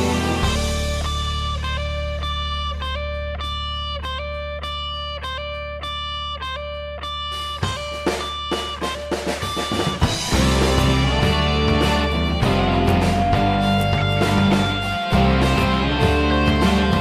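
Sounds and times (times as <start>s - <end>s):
picked electric guitar: 0.0s - 17.0s
held low bass note: 10.2s - 17.0s.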